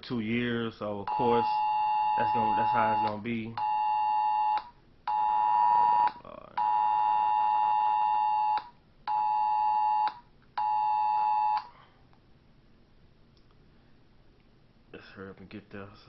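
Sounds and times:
two-pitch electronic alert tone: 1.1 - 4.6.

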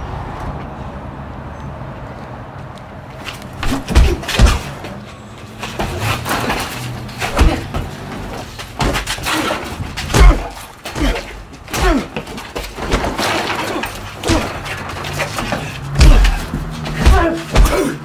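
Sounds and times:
punches and body impacts: 3.2 - 5.0, 5.6 - 18.0.

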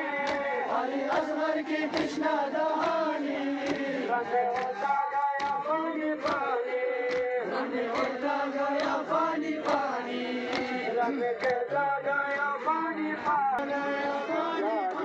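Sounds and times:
men chanting a lament: 0.0 - 15.0
hands slapping chests: 0.1 - 11.9.

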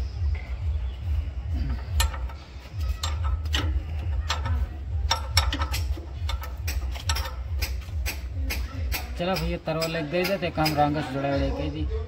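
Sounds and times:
metal tools clicking and knocking: 1.6 - 11.2.

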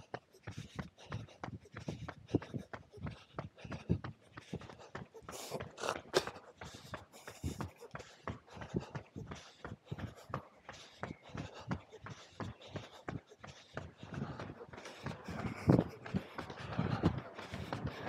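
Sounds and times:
runners' footsteps on road: 0.0 - 18.0.

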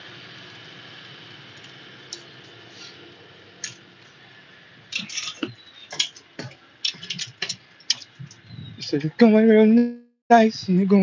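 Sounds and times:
clicks and knocks: 4.9 - 8.4.

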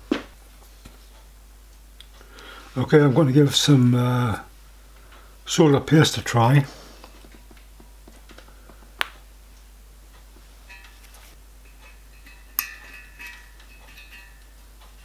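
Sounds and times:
metal pick ticking: 11.6 - 15.0.

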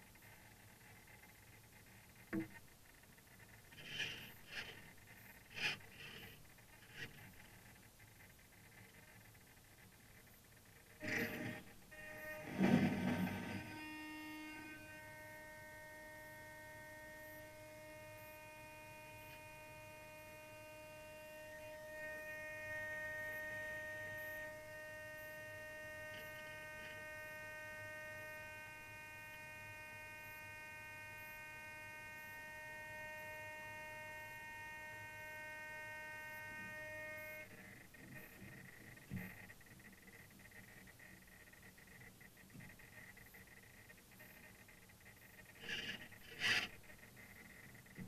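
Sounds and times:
high electronic whine: 11.0 - 39.5.

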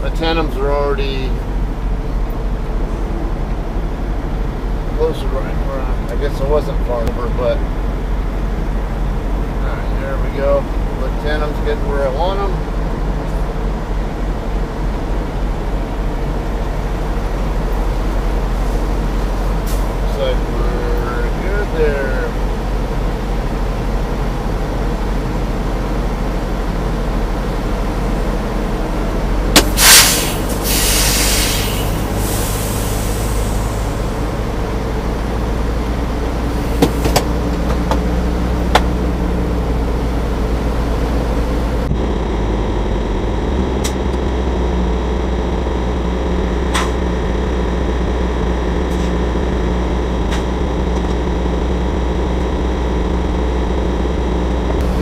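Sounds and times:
diesel truck engine idling: 0.0 - 55.0
air brakes hissing: 29.6 - 34.2
sharp clicks and knocks: 36.8 - 38.1, 38.7 - 39.0.

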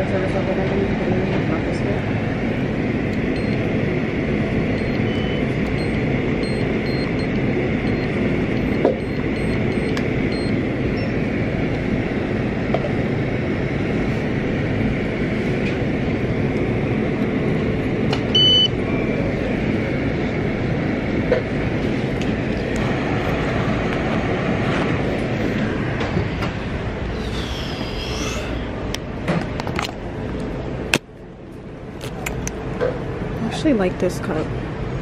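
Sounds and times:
machine and room hum: 0.0 - 35.0
short electronic beep: 4.8 - 11.2, 18.4 - 18.7.

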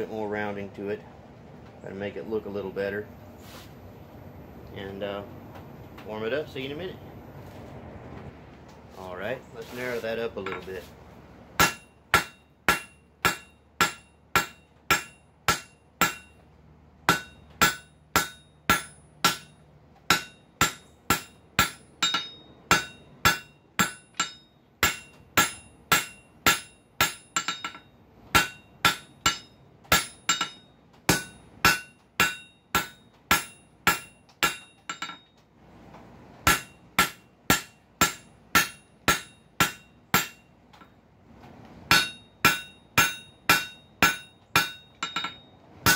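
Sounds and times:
hammer striking steel on anvil: 10.4 - 10.8, 11.6 - 16.5, 17.1 - 35.4, 36.4 - 41.0, 41.9 - 45.9.

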